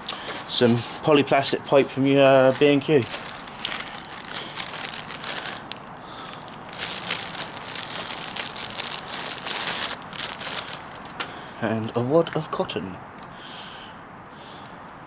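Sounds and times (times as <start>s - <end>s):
plastic bag crinkling: 2.0s - 11.2s.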